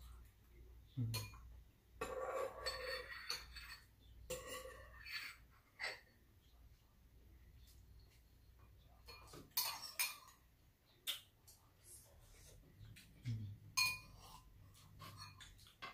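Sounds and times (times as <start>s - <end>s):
utensils clinking against bowls: 1.1s - 6.1s, 9.0s - 10.5s, 13.7s - 15.9s.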